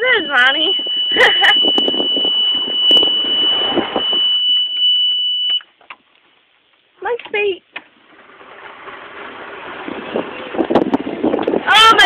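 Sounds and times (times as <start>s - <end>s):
high-pitched electronic tone: 0.0s - 5.6s.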